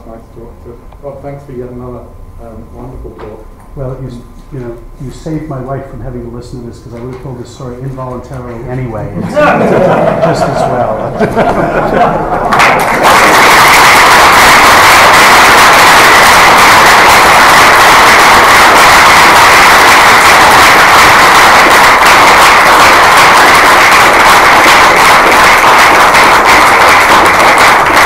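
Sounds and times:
audience applauding: 9.4s - 28.0s.

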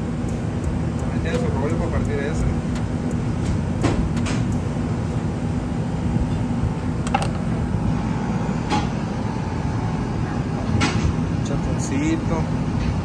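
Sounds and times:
low rumble of kitchen machinery: 0.0s - 13.0s.

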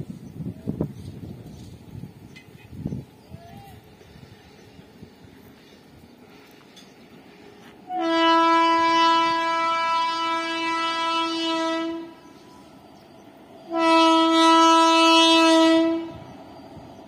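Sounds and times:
locomotive horn blasts: 7.9s - 12.7s, 13.7s - 16.3s.

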